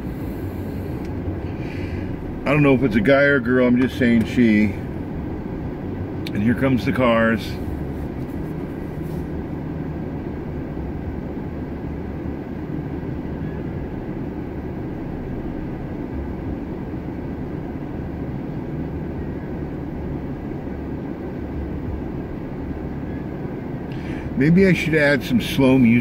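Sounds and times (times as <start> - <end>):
air-conditioning fan: 0.0 - 26.0
car engine idling: 0.0 - 26.0.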